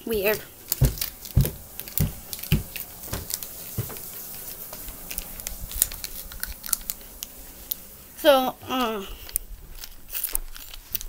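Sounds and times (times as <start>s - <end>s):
heavy thumps: 0.2s - 4.9s.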